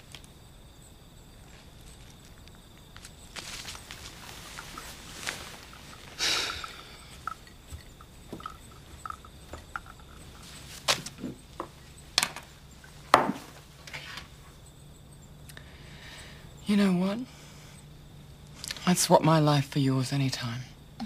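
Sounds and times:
magazine pages rustling: 3.0s - 6.2s.

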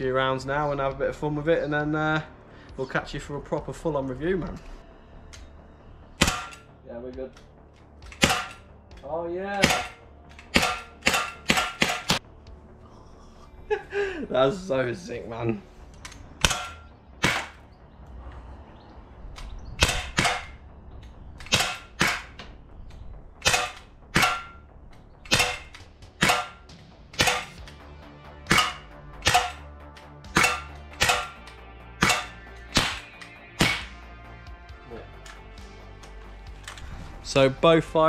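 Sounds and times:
air pistol firing: 6.2s - 6.7s, 8.0s - 8.7s, 9.6s - 12.2s, 16.1s - 17.6s, 19.8s - 20.6s, 21.4s - 22.5s, 23.4s - 24.6s, 25.2s - 27.8s, 28.4s - 34.1s.

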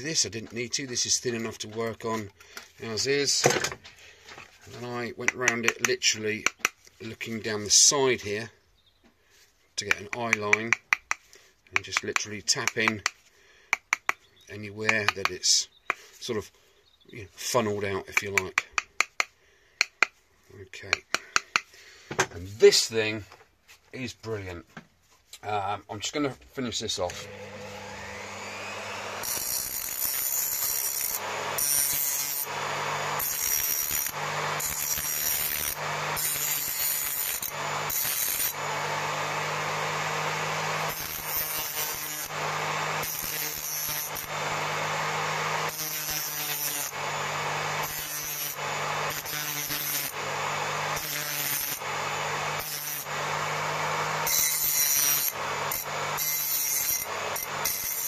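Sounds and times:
bench grinder motor humming: 27.1s - 58.0s.

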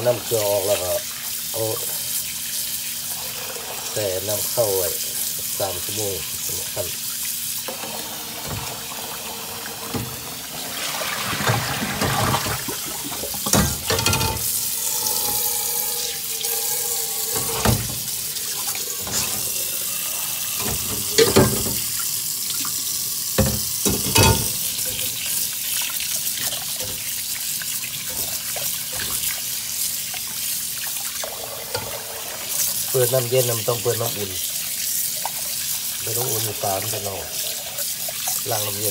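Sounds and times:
water splashing from hand rinsing: 0.0s - 38.9s
tap running into pot of water: 9.6s - 14.5s, 20.6s - 25.4s.

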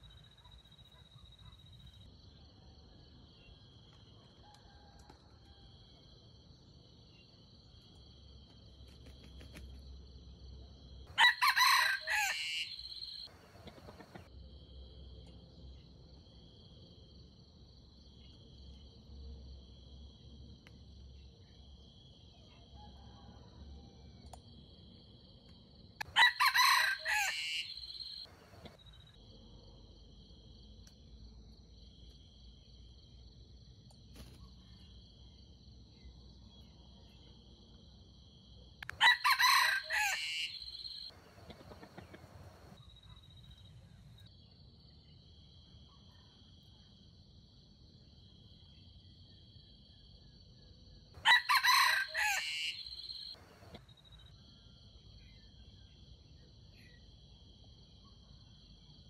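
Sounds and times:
rooster crowing: 11.1s - 14.3s, 26.0s - 28.8s, 38.9s - 42.8s, 51.2s - 53.8s.

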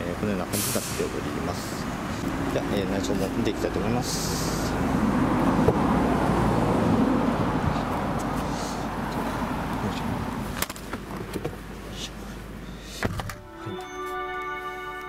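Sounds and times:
street traffic noise: 0.0s - 15.0s
car door shutting: 13.0s - 13.6s.

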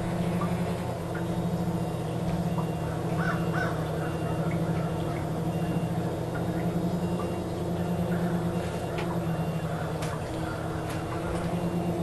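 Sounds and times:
drone motors humming: 0.0s - 12.0s
crows cawing: 3.2s - 4.9s.

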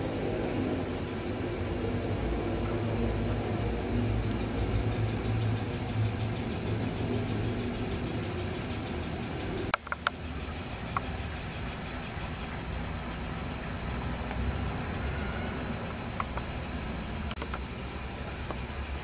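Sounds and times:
low machine hum: 0.0s - 19.0s
sharp clicks: 4.2s - 14.5s, 15.8s - 18.8s.

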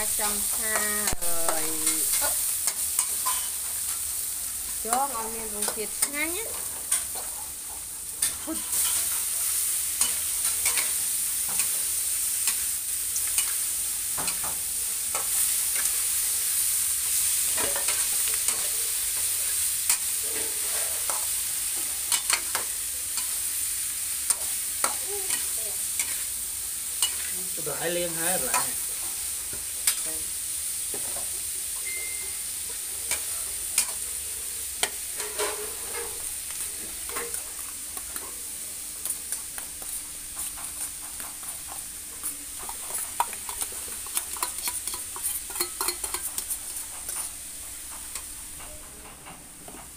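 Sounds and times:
sizzling in a wok: 0.0s - 49.9s
metal spatula scraping wok: 0.2s - 4.1s, 8.2s - 12.7s, 15.1s - 23.6s, 24.3s - 26.4s, 27.0s - 29.2s, 34.8s - 37.4s, 42.8s - 47.4s.

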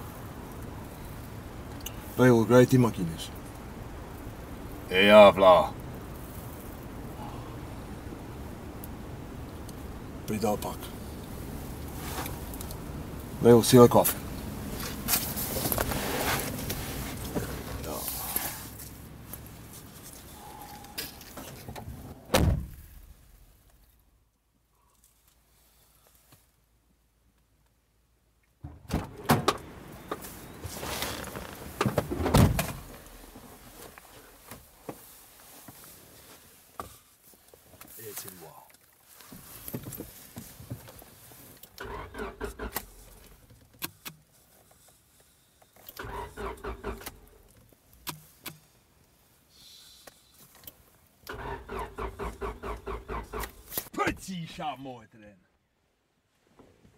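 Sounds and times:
person getting into car seat: 10.5s - 23.1s, 28.6s - 45.0s, 45.7s - 48.7s
car door shutting thud: 21.8s - 22.9s, 28.6s - 30.2s, 31.8s - 33.0s
car starter cranking engine: 41.7s - 44.1s, 45.9s - 47.6s, 51.2s - 54.0s
short hiss: 49.5s - 50.6s.

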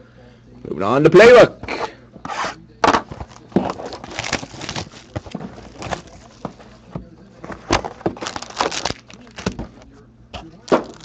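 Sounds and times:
cardboard box crackling and scraping: 3.2s - 6.7s.

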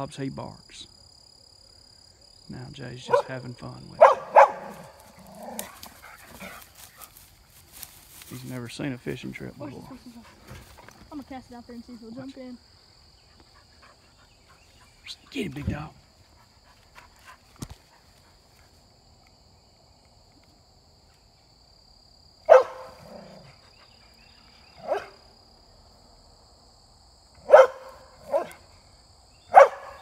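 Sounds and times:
dog barking: 3.0s - 3.4s, 4.0s - 5.7s, 22.5s - 23.4s, 24.8s - 25.2s, 27.4s - 28.7s, 29.5s - 30.0s.

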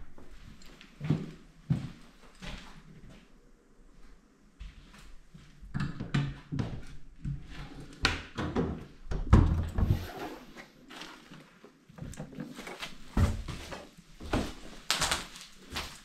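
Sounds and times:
footsteps on debris-strewn floor: 10.0s - 16.0s.

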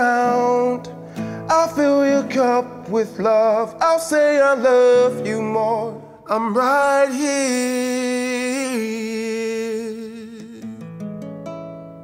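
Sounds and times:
man singing a held note: 7.0s - 10.8s.

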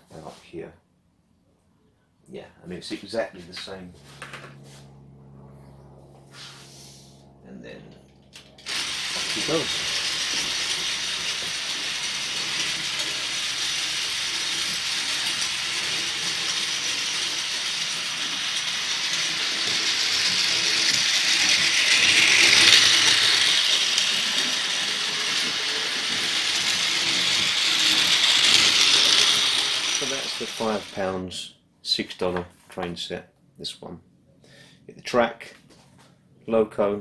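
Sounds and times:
toy train motor whirring: 8.3s - 31.2s.

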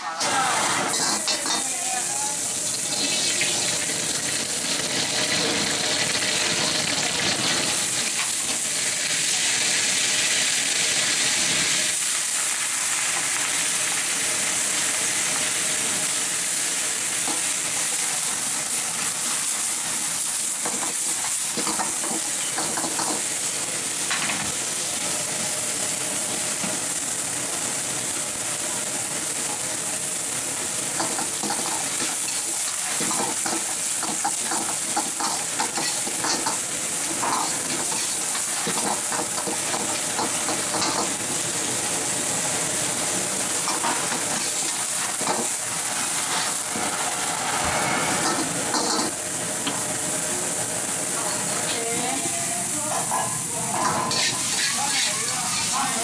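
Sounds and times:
greens sizzling in a wok: 0.0s - 56.0s
metal ladle scraping a wok: 46.2s - 49.2s, 53.8s - 55.8s.

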